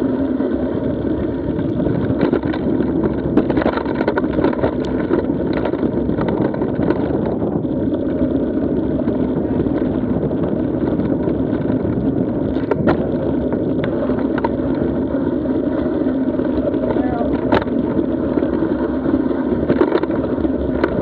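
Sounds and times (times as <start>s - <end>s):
bike tyre and trail rumble: 0.0s - 21.0s
wind on microphone: 0.0s - 21.0s
sharp clicks and rattles: 0.4s - 21.0s.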